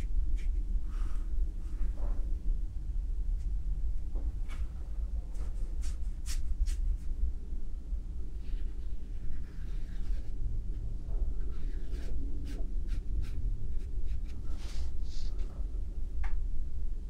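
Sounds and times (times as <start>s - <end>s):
brush stroking on paper: 0.0s - 1.8s, 5.4s - 7.1s, 8.3s - 15.4s
low hum: 0.0s - 17.0s.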